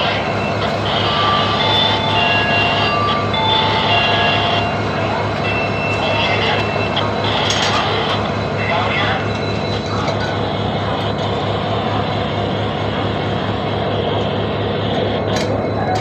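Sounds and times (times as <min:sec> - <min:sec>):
diesel locomotive engine throb: 0:00.0 - 0:16.0
high-pitched squeals and whines: 0:00.0 - 0:16.0.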